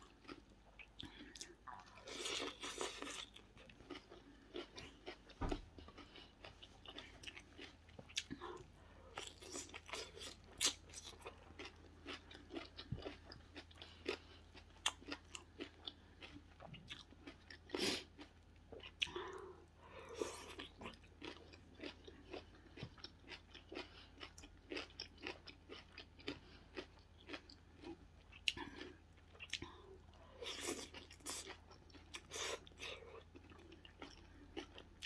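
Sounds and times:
person chewing crunchy food: 0.0 - 35.0.

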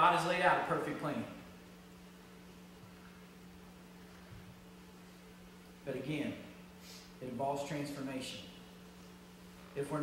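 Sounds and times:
low electrical hum: 0.0 - 10.0
faint hiss: 2.6 - 10.0.

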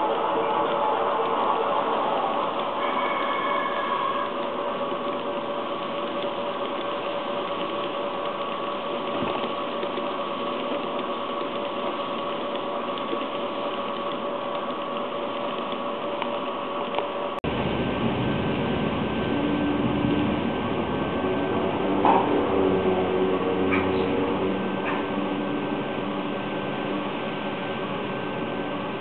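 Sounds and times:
model train rattling on track: 2.4 - 17.0.

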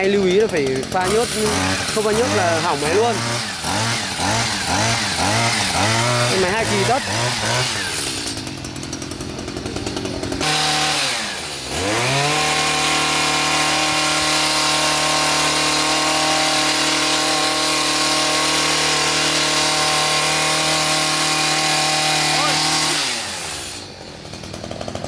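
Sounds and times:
hedge trimmer engine revving: 0.0 - 25.0.

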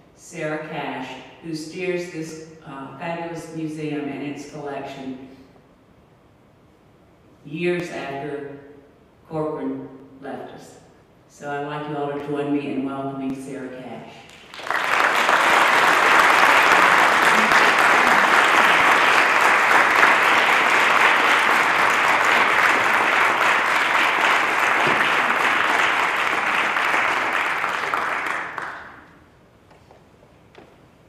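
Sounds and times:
audience applauding: 14.3 - 29.2.

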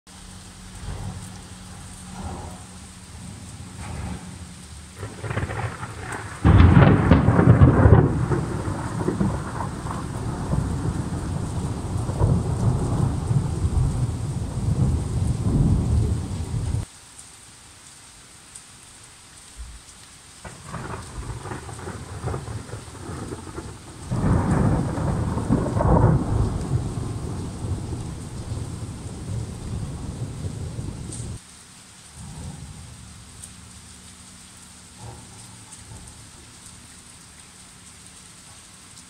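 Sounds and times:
steady rain: 0.0 - 39.0
thunder rumbling: 0.5 - 16.9, 20.4 - 31.4, 32.2 - 33.8, 34.8 - 36.9.

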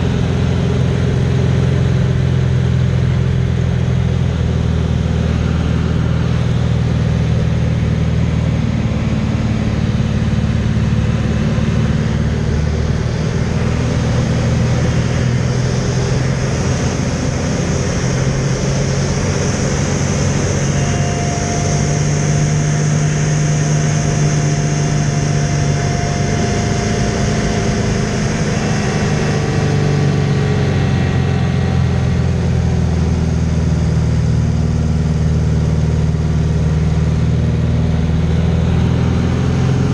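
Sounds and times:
propeller plane engine running: 0.0 - 39.9
rushing airflow: 3.3 - 30.9.

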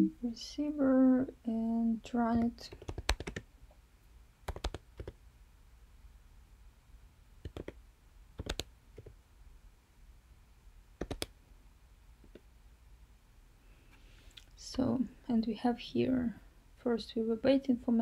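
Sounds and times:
keyboard keys clicking: 2.4 - 3.4, 4.5 - 5.2, 7.4 - 7.8, 8.4 - 9.1, 11.0 - 11.3.

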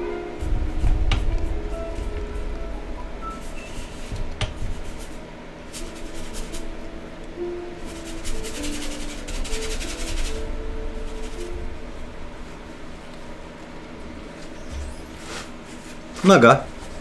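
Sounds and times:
soft background music: 0.0 - 17.0
paintbrush scraping on canvas: 3.2 - 6.9, 7.8 - 11.7.

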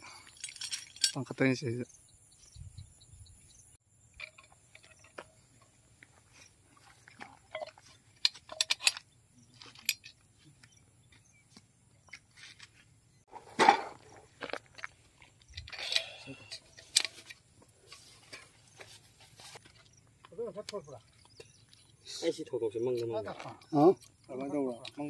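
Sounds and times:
small metallic clicks and scrapes: 0.2 - 1.3, 4.2 - 5.7, 7.1 - 10.8, 13.7 - 22.2, 22.9 - 25.0.

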